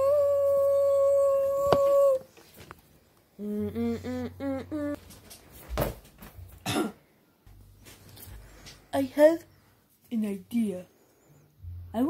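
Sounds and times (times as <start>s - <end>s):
person humming: 0.0s - 2.3s, 3.4s - 5.0s.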